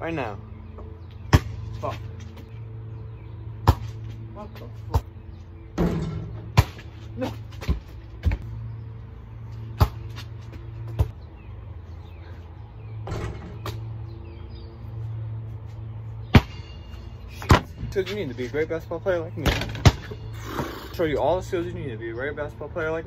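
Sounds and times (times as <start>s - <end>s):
basketball bouncing: 9.7s - 11.2s.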